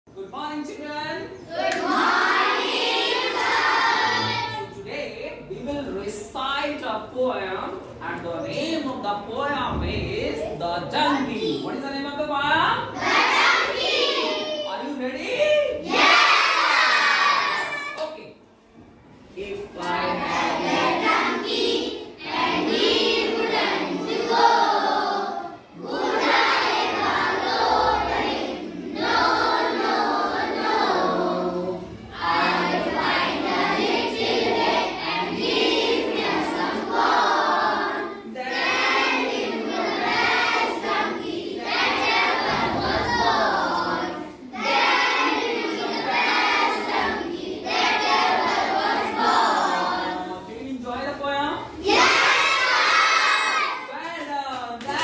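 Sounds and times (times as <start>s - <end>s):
children singing in unison: 1.4s - 4.7s, 13.0s - 14.7s, 15.8s - 17.9s, 20.1s - 50.4s, 51.8s - 53.9s.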